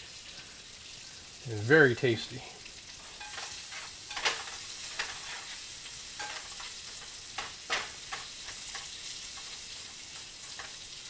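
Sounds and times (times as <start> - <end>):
food sizzling in a frying pan: 0.0 - 11.0
spatula scraping a pan: 3.0 - 11.0.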